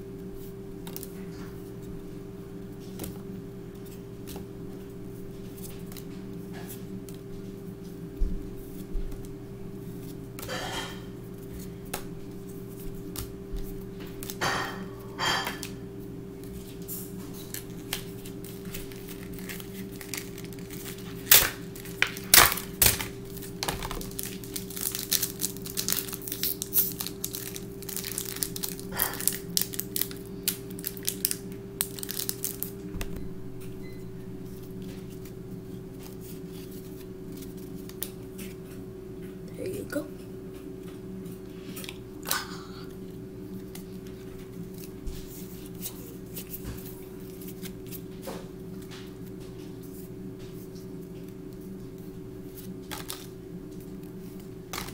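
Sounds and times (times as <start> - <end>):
steady low hum: 0.0 - 54.9
cards and packaging handled: 16.4 - 32.7, 51.5 - 54.9
foil pack crinkling and tearing: 16.4 - 32.9, 52.5 - 53.4.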